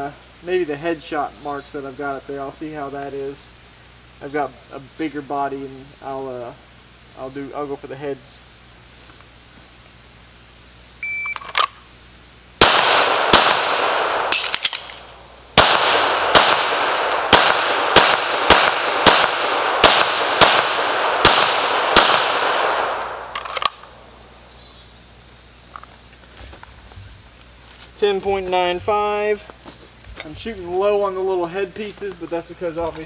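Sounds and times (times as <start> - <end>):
shot timer beep: 11.0 - 11.4
pistol shots with echo: 12.6 - 24.1.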